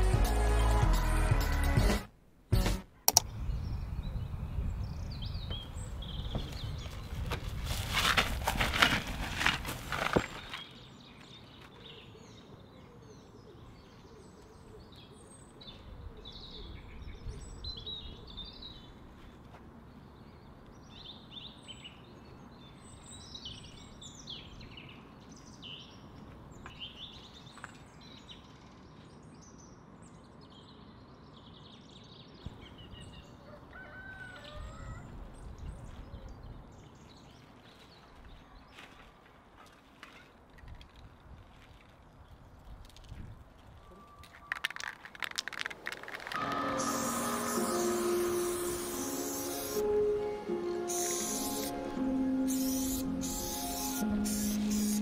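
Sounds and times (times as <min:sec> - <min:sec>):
small birds chirping: 0:03.1 - 0:07.4, 0:50.8 - 0:55.0.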